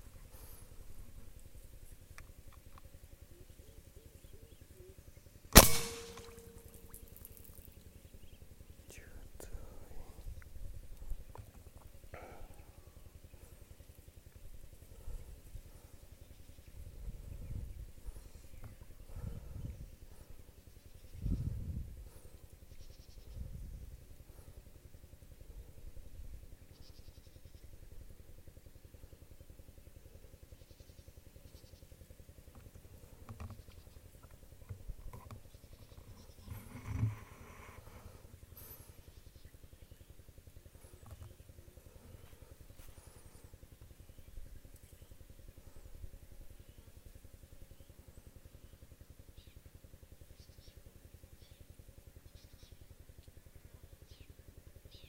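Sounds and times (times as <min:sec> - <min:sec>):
birds chirping: 0:00.0 - 0:23.7.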